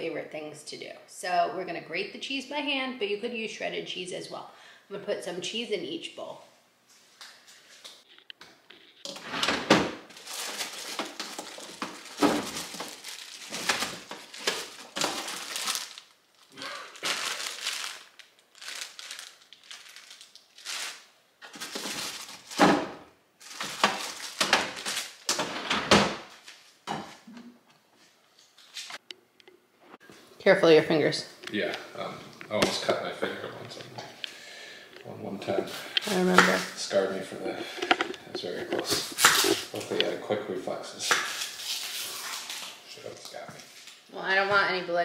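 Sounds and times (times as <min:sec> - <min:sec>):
plastic bag crinkling: 0:10.1 - 0:22.7, 0:23.4 - 0:25.4.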